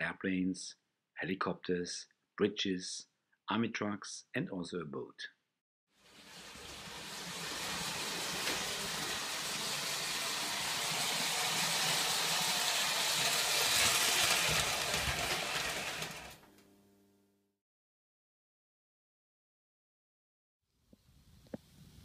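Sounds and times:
toy train whirring on track: 0:06.1 - 0:16.4.

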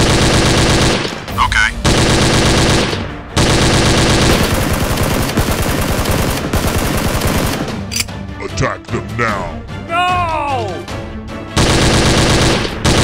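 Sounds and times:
machine-gun fire: 0:00.0 - 0:07.9, 0:11.6 - 0:13.0.

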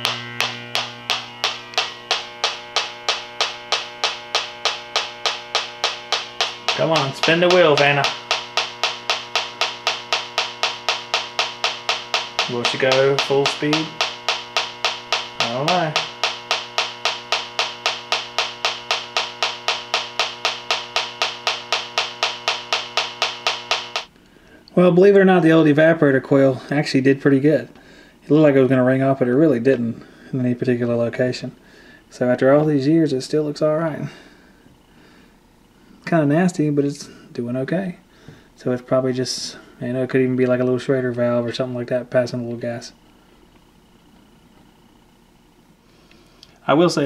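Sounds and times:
leak detector ticking: 0:00.0 - 0:24.2
steady hum: 0:00.0 - 0:47.0.

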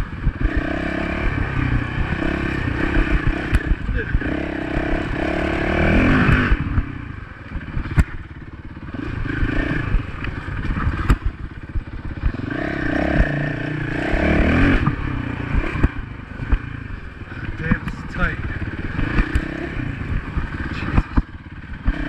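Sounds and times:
dirt bike engine revving: 0:00.0 - 0:22.0
sharp knocks and rattles: 0:07.7 - 0:08.3, 0:10.5 - 0:13.4, 0:17.6 - 0:22.0.

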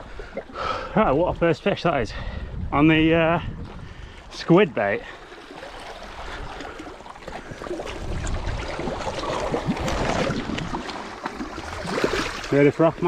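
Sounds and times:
wind on microphone: 0:01.2 - 0:04.3, 0:07.5 - 0:10.9
sea water lapping against rocks: 0:05.0 - 0:13.0.

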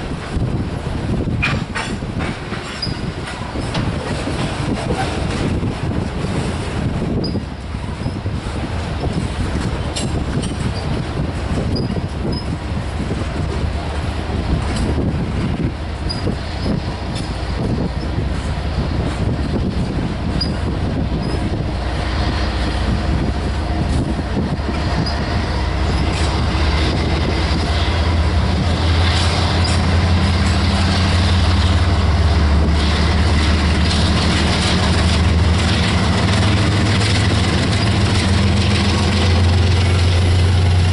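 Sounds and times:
diesel locomotive engine drone: 0:00.0 - 0:40.9
train wheels on rails: 0:00.0 - 0:40.9
wheel squeal: 0:02.6 - 0:03.8, 0:07.2 - 0:08.3, 0:11.7 - 0:12.6, 0:16.0 - 0:17.3, 0:20.3 - 0:21.5.

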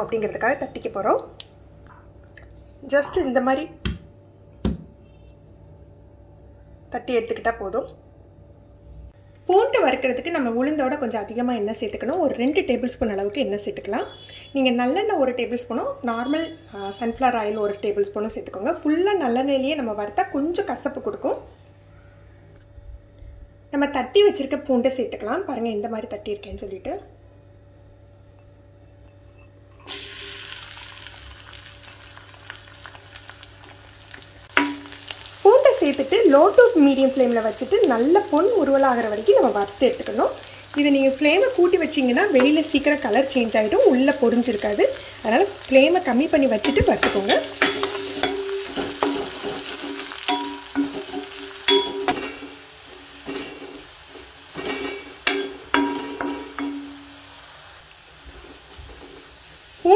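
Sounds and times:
garlic sizzling in hot oil: 0:29.8 - 0:59.9
oil popping: 0:29.9 - 0:36.8, 0:46.4 - 0:53.4
spatula knocking metal pan: 0:34.5 - 0:35.0, 0:46.6 - 0:52.6, 0:54.6 - 0:57.2
spatula stirring and scraping pan: 0:46.6 - 0:57.2.

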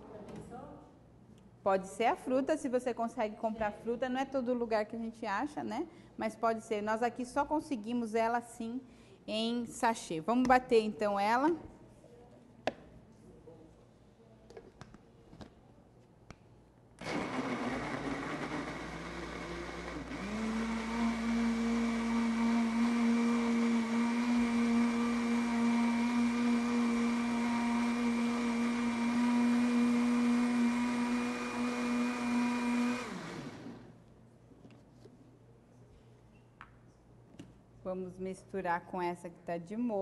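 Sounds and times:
blender motor whining: 0:17.0 - 0:33.9.

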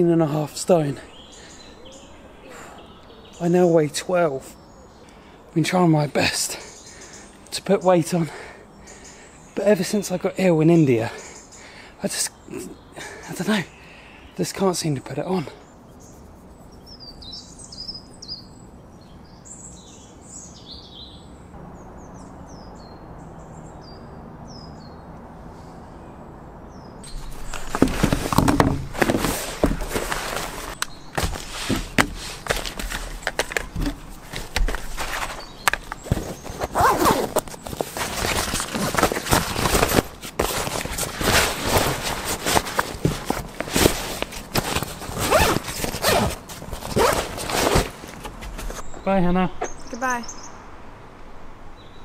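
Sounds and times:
birds chirping: 0:00.0 - 0:25.2, 0:25.9 - 0:52.0
zip being worked: 0:27.1 - 0:48.0
camera gear rustling in a bag: 0:27.1 - 0:48.9.

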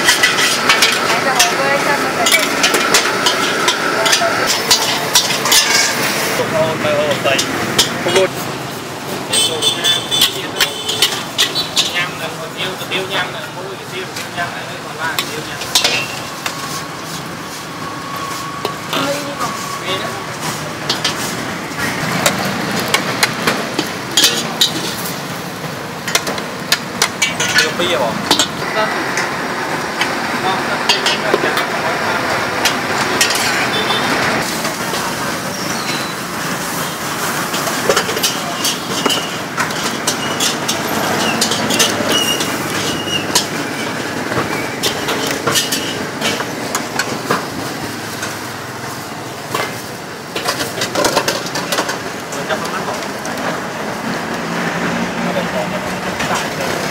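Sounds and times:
metal ladle scraping a wok: 0:00.0 - 0:12.2, 0:15.2 - 0:25.3, 0:32.6 - 0:47.1
street traffic: 0:00.0 - 0:56.9.

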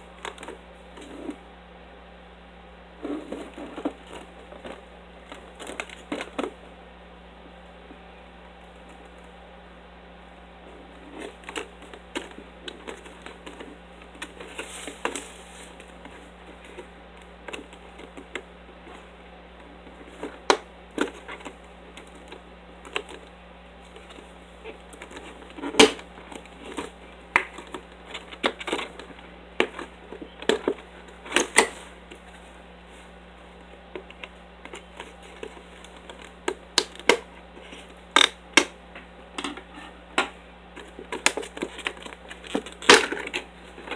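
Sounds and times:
plastic box clicking and crackling: 0:03.8 - 0:06.5, 0:11.2 - 0:15.2, 0:19.9 - 0:23.3, 0:24.0 - 0:32.2, 0:33.9 - 0:38.7, 0:40.8 - 0:43.9.

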